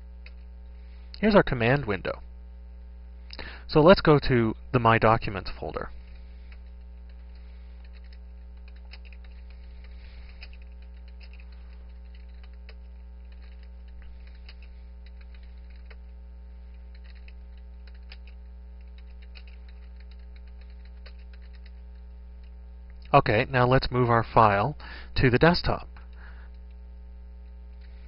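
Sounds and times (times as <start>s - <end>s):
low electrical hum: 0.0s - 28.0s
keyboard typing clicks: 6.5s - 16.0s, 16.7s - 21.8s.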